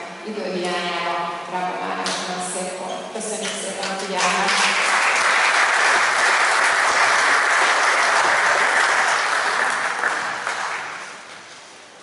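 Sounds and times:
audience applauding: 4.2 - 11.3.

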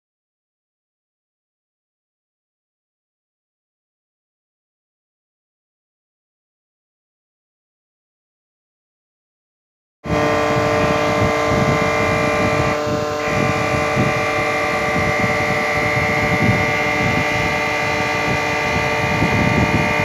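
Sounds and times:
metal cutting noise: 10.1 - 20.0
milling machine whining: 10.1 - 20.0.

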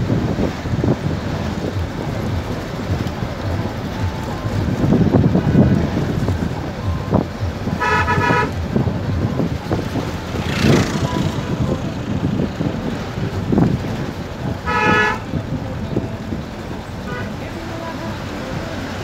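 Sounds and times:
moving vehicle engine and tyres: 0.0 - 19.0
vehicle horn tooting: 7.7 - 8.8, 14.5 - 15.5, 17.0 - 17.7.

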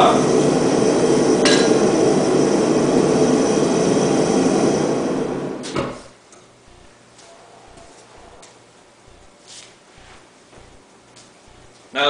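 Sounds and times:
gas burner roaring: 0.0 - 12.0.

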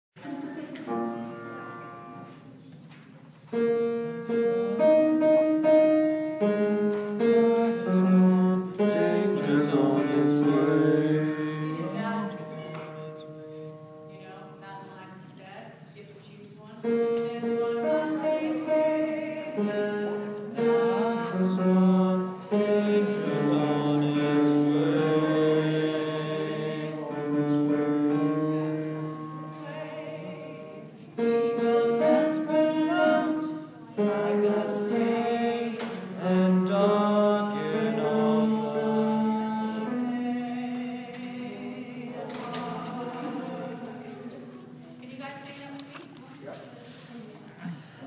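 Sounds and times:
men singing in close harmony: 7.2 - 12.3, 17.4 - 28.8, 30.0 - 44.4.

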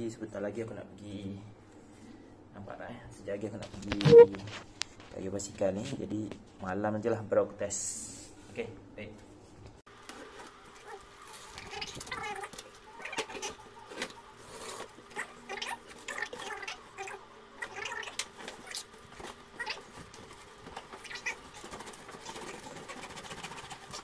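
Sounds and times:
cardboard squeaking: 17.6 - 24.0.

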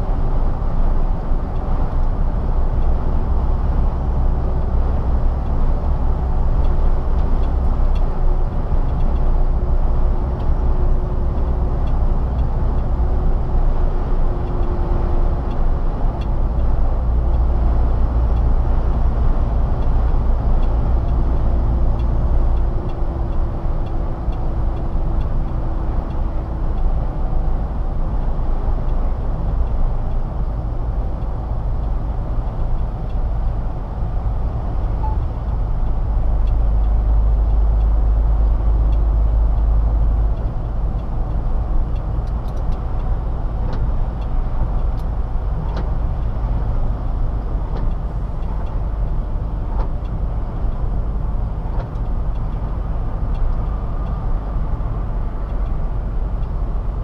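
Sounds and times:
truck engine rumble: 0.0 - 57.0.

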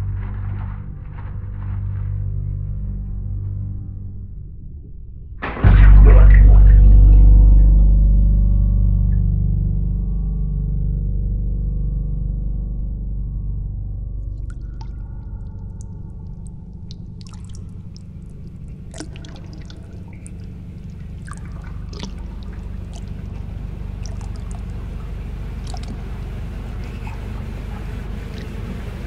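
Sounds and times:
steady low rumble: 0.0 - 29.0
bathwater sloshing and dripping: 14.3 - 29.0
small splashes: 14.3 - 29.0.

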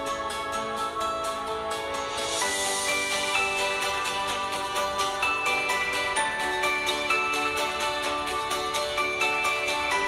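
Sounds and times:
light steady beat: 0.0 - 10.0.

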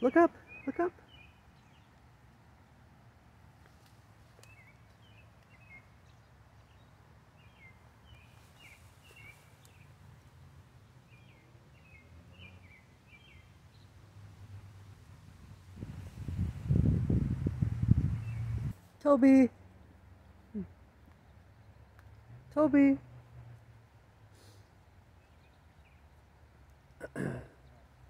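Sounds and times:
small bird chirping: 4.3 - 10.4.

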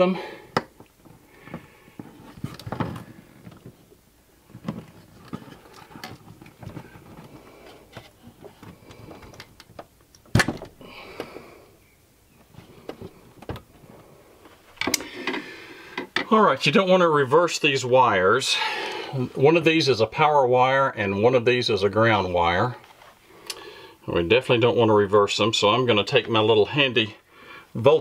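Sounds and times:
wires rustling: 0.0 - 11.6.

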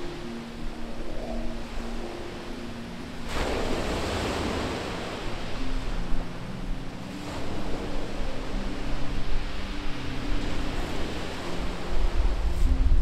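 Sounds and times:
waves crashing on shingle: 3.2 - 5.5.

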